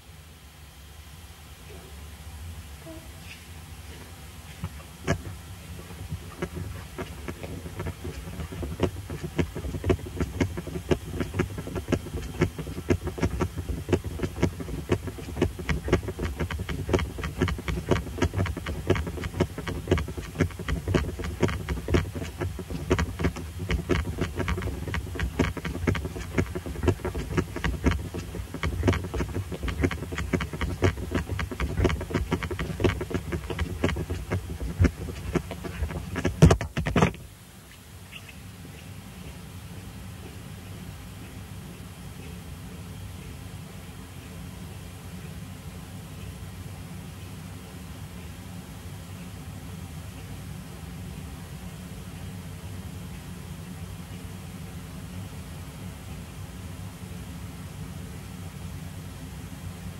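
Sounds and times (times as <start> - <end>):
footsteps: 4.5 - 37.2
muffled knocks and rattles: 4.6 - 37.2.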